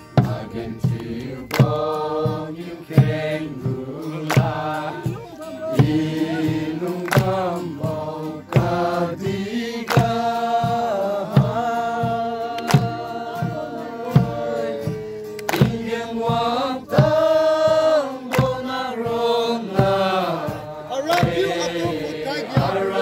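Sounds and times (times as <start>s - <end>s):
group singing a gospel song: 0.0s - 23.0s
sharp hand claps: 0.2s - 2.2s, 2.9s - 4.9s, 6.9s - 9.0s, 9.8s - 10.5s, 12.5s - 13.2s, 14.2s - 17.2s, 18.2s - 18.8s, 21.1s - 22.7s.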